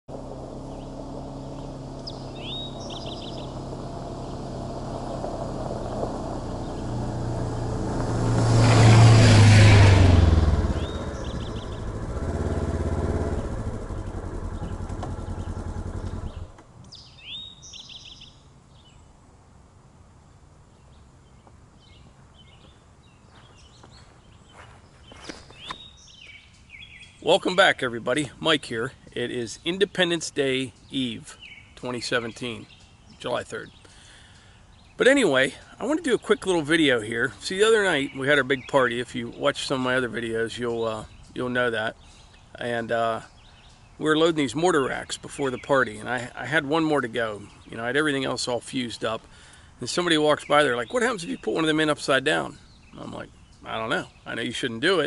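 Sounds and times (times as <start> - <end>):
birds chirping: 0.1 - 8.2, 8.8 - 19.2, 20.2 - 55.0
utility vehicle engine driving past: 0.1 - 16.6.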